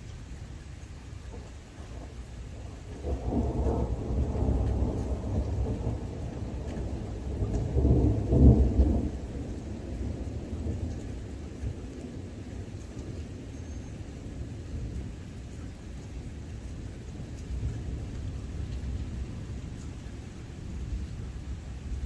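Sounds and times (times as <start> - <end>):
steady rain: 0.0 - 22.0
thunder rumbling: 1.3 - 15.2.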